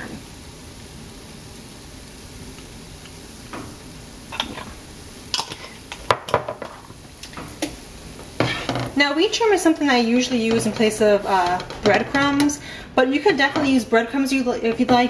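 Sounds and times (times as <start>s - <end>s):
faint sizzle in a skillet: 0.0s - 15.0s
kitchenware knocking against pan: 8.4s - 9.0s, 10.4s - 12.6s, 13.4s - 13.8s.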